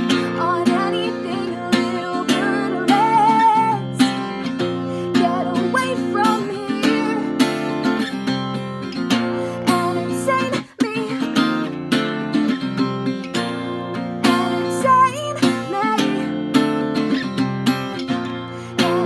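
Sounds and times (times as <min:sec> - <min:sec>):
person singing: 0:00.0 - 0:04.2, 0:05.0 - 0:07.5, 0:09.6 - 0:11.6, 0:14.2 - 0:16.3, 0:18.5 - 0:19.0
acoustic guitar strumming: 0:00.0 - 0:19.0.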